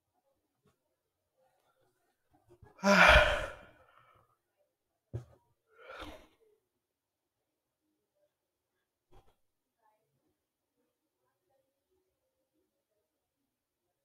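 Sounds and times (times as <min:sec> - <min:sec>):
person sighing loudly: 0:02.8 - 0:03.8.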